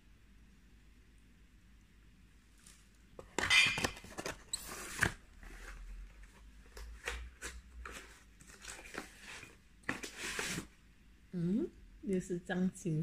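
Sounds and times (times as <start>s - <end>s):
packaging rustling: 2.6s - 10.7s.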